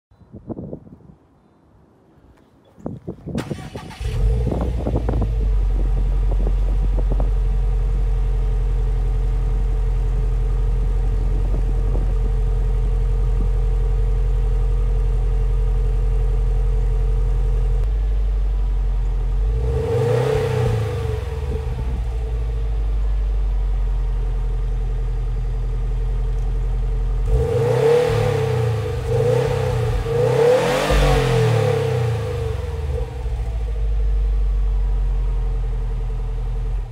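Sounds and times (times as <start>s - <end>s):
car engine starting and idling: 3.3s - 36.9s
car engine revving: 19.1s - 24.1s, 27.1s - 34.4s.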